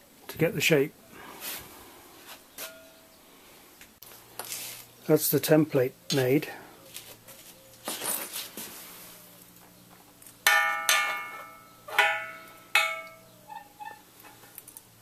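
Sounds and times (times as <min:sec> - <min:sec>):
handling rustles: 0:06.8 - 0:10.4.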